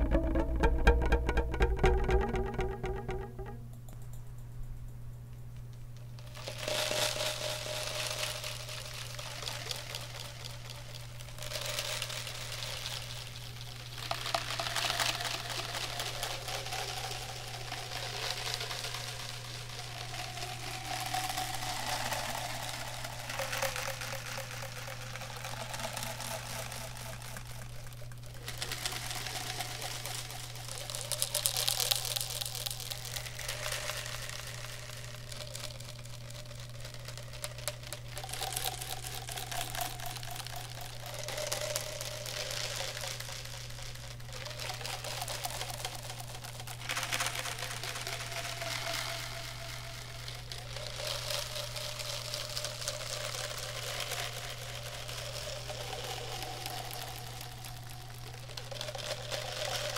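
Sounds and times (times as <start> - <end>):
plastic bottle crackling: 0.0 - 3.6.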